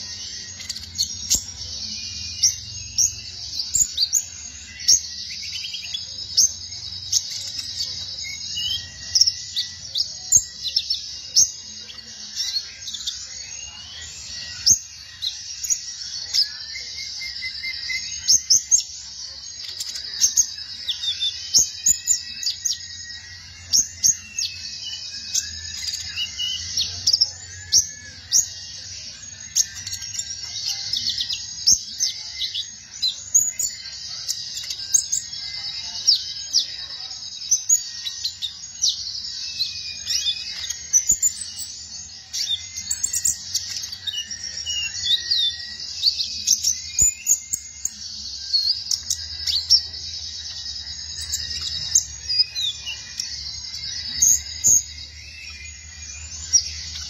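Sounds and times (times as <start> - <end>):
bird singing chirps and trills: 0.0 - 57.0.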